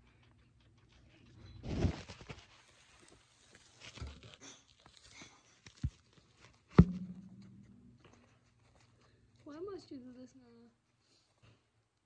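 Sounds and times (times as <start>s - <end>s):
knocks in cage: 6.8s - 7.9s
short thump: 6.8s - 8.0s.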